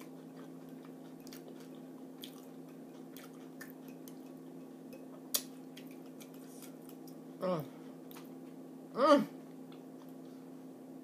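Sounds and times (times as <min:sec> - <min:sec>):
wet chewing: 0:00.0 - 0:04.4, 0:05.2 - 0:07.2
steady low hum: 0:00.0 - 0:11.0.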